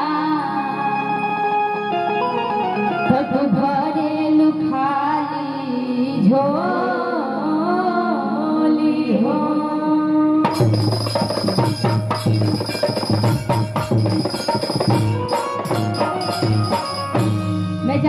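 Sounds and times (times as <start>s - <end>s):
woman singing: 0.0s - 1.4s, 3.0s - 10.5s
held accompanying note: 10.4s - 18.0s
band drums playing: 10.5s - 18.0s.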